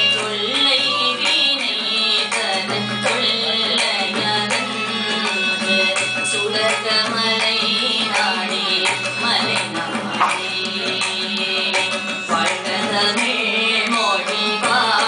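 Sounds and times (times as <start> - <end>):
woman singing: 0.0 - 15.0
hand drum strokes: 7.0 - 13.1.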